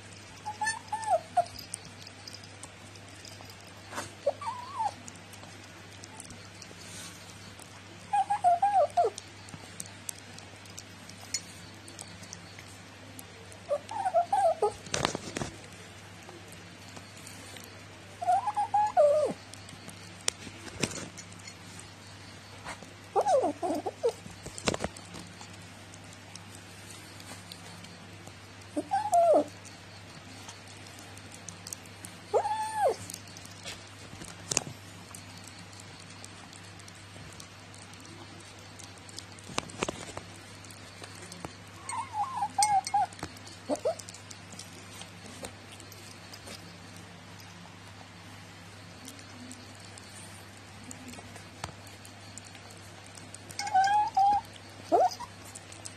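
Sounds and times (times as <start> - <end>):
chewing clicks on ceramic bowl: 0.1 - 22.0, 22.6 - 47.6, 49.0 - 55.9
cat vocalizing: 4.0 - 5.4, 8.0 - 9.3, 13.6 - 14.9, 18.1 - 19.5, 23.1 - 24.3, 28.6 - 29.7, 32.3 - 33.2, 41.7 - 44.6, 52.0 - 55.9
cat warbling mutter: 53.6 - 55.3.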